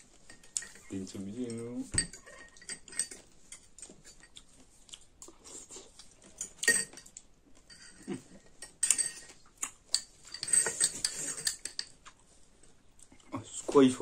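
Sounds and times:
fork and spoon clinking on glass bowls: 0.2s - 4.4s, 6.4s - 12.1s.

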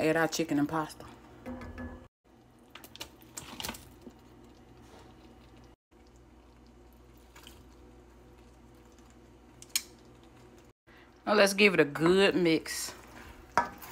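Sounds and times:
sauce simmering with soft pops: 2.2s - 11.3s.

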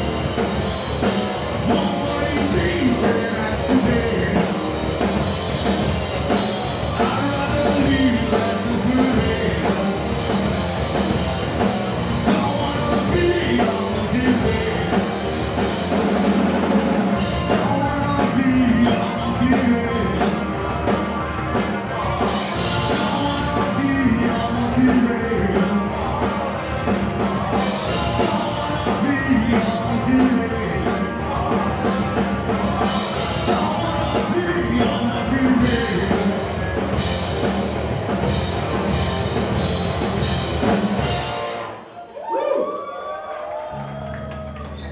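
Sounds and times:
drum kit: 0.0s - 41.9s
bass guitar: 0.0s - 42.0s
distorted electric guitars: 0.0s - 42.0s
person singing: 1.5s - 4.8s, 6.8s - 10.4s, 12.2s - 15.3s, 17.3s - 37.0s.

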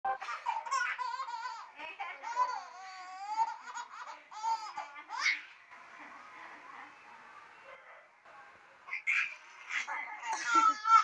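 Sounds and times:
baby giggling: 0.2s - 5.5s, 8.9s - 11.0s.

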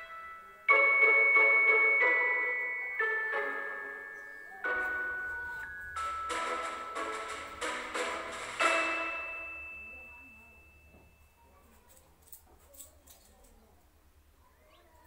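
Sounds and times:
chime tune of bell-like notes: 0.0s - 11.6s.

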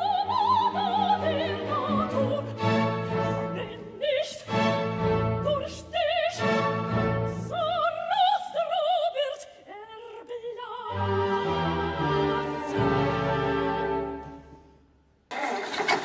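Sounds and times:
orchestra: 0.0s - 9.0s, 10.7s - 14.8s
operatic singing: 0.0s - 14.4s.

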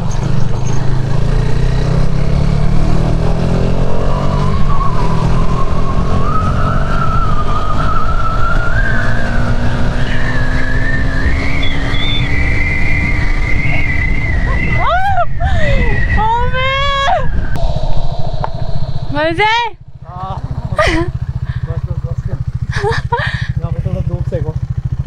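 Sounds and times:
motorcycle accelerating: 0.0s - 25.0s
wind noise on microphone: 2.8s - 20.8s.

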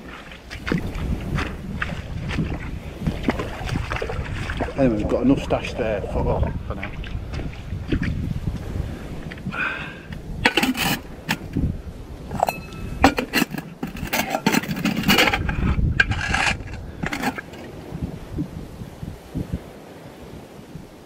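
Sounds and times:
metal pots and lids clinking: 10.4s - 11.6s, 12.3s - 17.6s
metallic ring: 12.3s - 15.4s.

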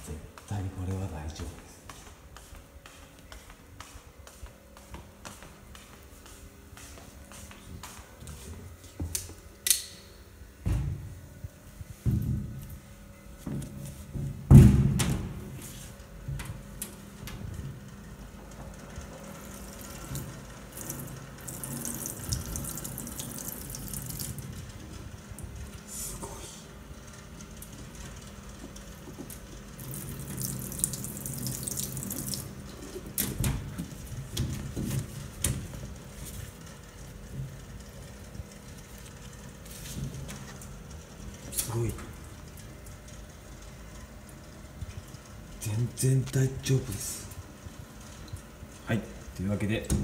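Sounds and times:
tap water running into sink: 20.8s - 24.4s, 29.8s - 32.5s.

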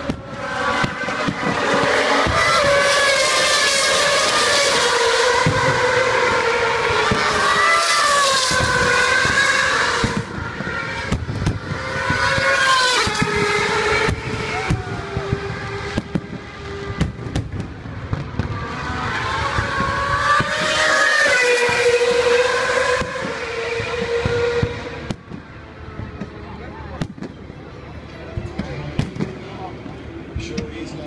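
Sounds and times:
fireworks bangs and crackles: 0.0s - 6.0s, 6.8s - 30.7s
racing car engines screaming past: 0.0s - 17.4s, 18.0s - 25.1s.

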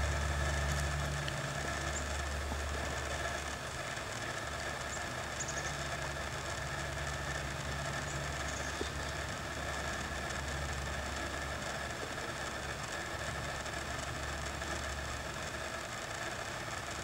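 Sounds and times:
low engine-like hum: 0.0s - 17.0s.

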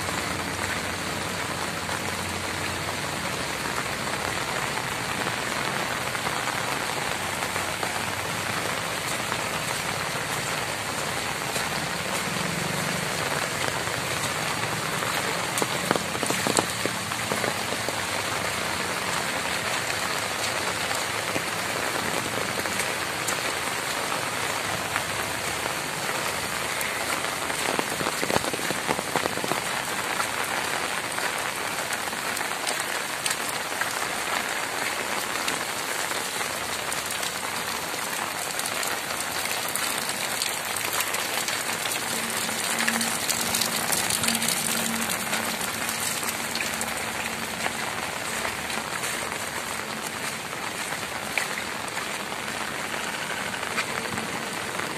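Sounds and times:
heavy rain falling: 0.0s - 54.9s.

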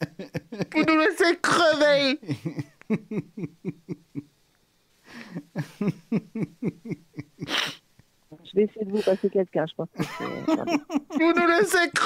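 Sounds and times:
man's stifled laughter: 0.0s - 1.1s, 2.2s - 4.2s, 5.1s - 7.8s, 10.0s - 12.0s
breathy gasp: 5.0s - 5.5s.

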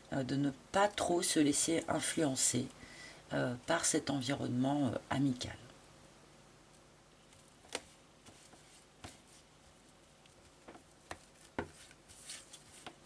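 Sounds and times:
fingers tapping cards: 10.2s - 12.0s.

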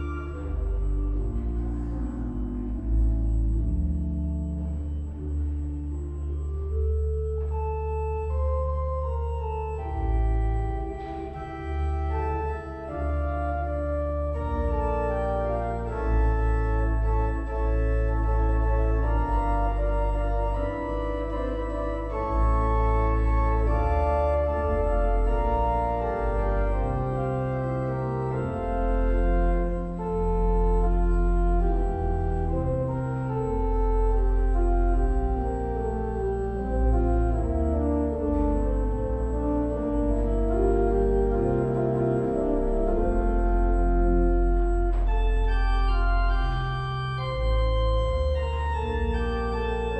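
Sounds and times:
slow organ music: 0.0s - 49.9s.

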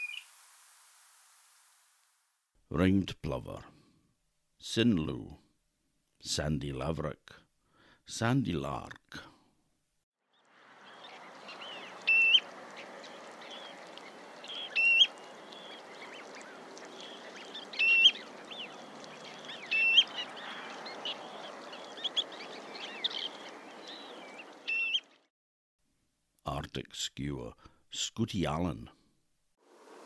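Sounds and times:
bird rising whistles: 0.0s - 0.2s
faint background hiss: 0.0s - 2.7s.

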